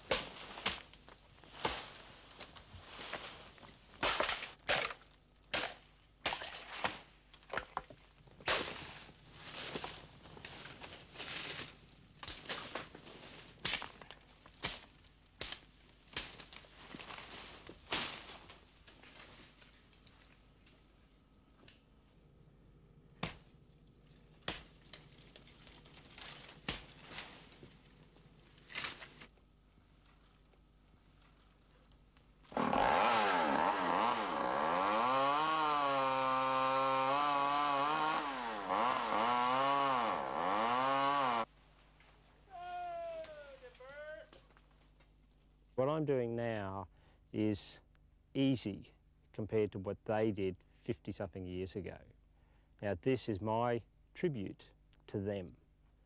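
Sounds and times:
rustling swish of vegetation: 0.0s - 4.0s, 16.2s - 19.7s
crashing rustle of brush: 0.0s - 5.0s, 8.4s - 20.4s, 24.4s - 29.4s
machete chopping undergrowth: 0.0s - 19.8s, 23.2s - 23.5s, 24.4s - 27.7s, 28.6s - 29.3s.

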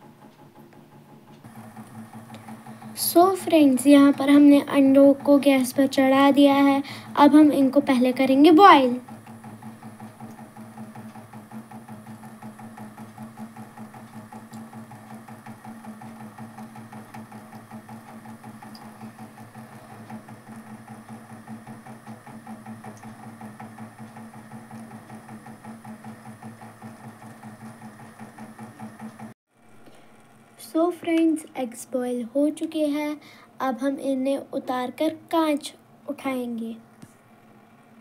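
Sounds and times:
gas stove hum: 0.0s - 38.0s
eggs rattling in boiling pot: 1.5s - 31.9s.

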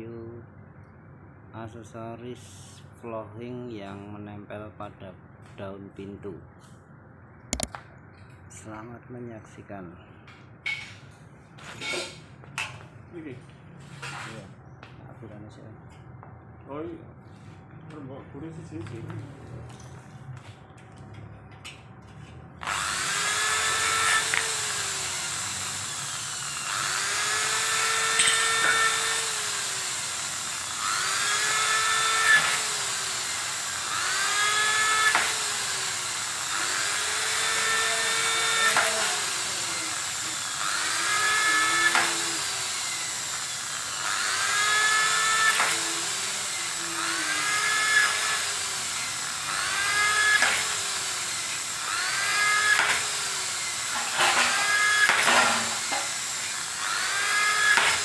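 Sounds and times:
electric drill boring into metal: 22.6s - 58.0s.

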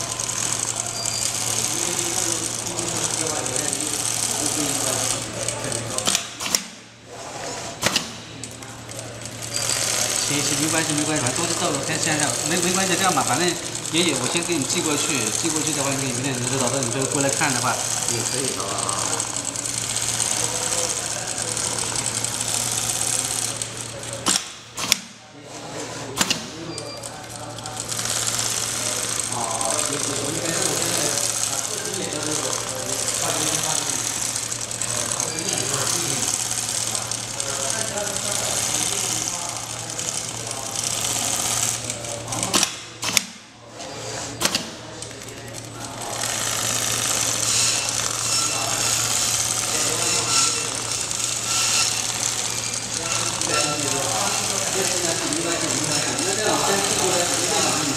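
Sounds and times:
sewing machine stitching: 0.0s - 57.9s
sharp click: 6.0s - 6.8s, 7.8s - 8.6s, 24.2s - 25.2s, 26.2s - 26.9s, 42.4s - 43.4s, 44.4s - 44.8s
sewing machine needle rattling: 7.8s - 25.0s.

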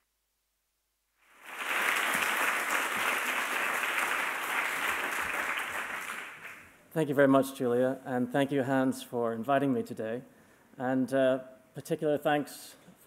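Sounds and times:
audience applauding: 1.3s - 6.7s.

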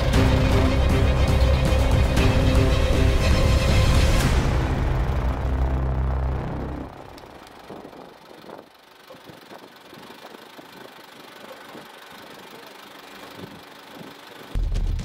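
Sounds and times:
low rumble: 0.0s - 10.8s
car engine running: 0.0s - 15.0s.

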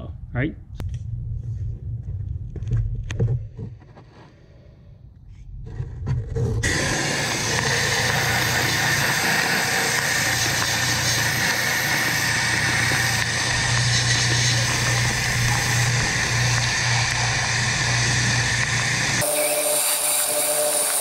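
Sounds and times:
low machine hum: 5.0s - 21.0s
sandblaster rush of air and sand: 6.6s - 21.0s.

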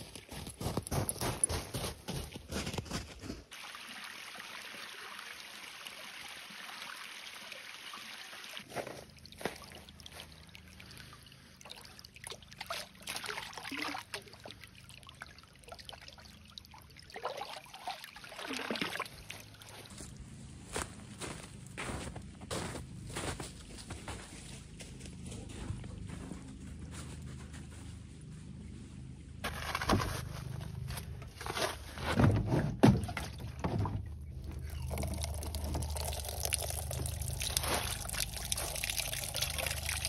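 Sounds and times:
water trickling: 3.5s - 20.0s, 34.1s - 40.0s
faint low hum: 19.8s - 40.0s.

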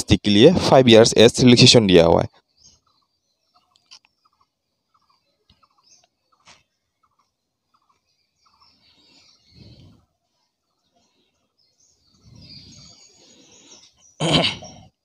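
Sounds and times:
faint bird chirps: 0.9s - 15.0s.

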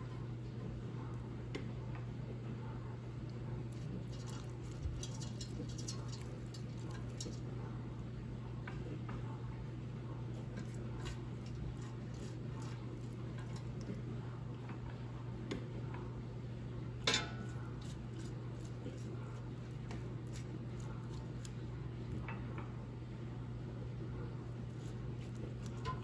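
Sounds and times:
steady low hum: 0.0s - 26.0s
pastry brush dabbing sauce: 3.6s - 7.9s, 10.4s - 14.5s, 17.3s - 22.1s, 24.5s - 26.0s.

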